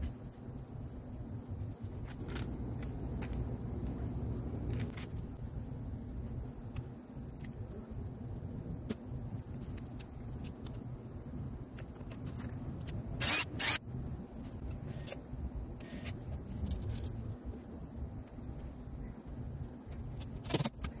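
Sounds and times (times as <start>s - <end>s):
steady low rumble: 0.0s - 13.2s.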